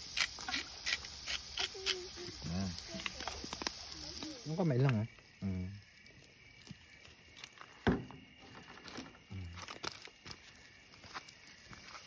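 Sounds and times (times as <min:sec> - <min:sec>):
person speaking: 0:01.6 - 0:05.8.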